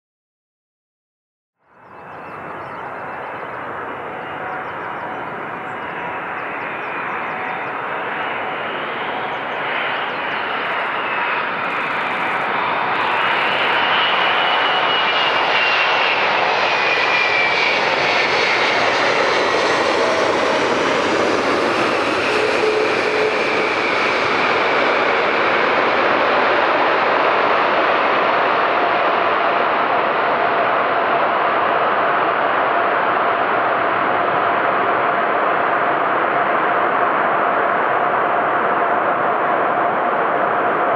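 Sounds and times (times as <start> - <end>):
jet engines roaring: 2.0 - 40.9.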